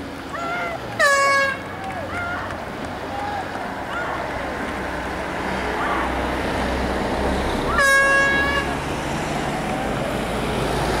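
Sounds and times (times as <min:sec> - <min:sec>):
low rumble of wind: 0:00.0 - 0:11.0
horn toot: 0:07.7 - 0:08.8.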